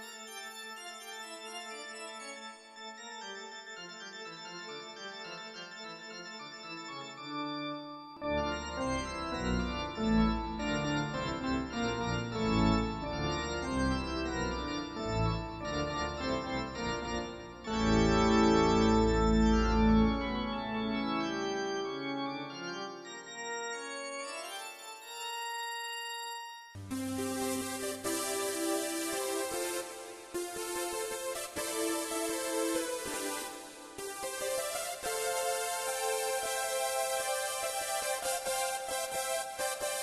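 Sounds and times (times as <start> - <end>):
synthesizer chords: 26.8 - 40.0.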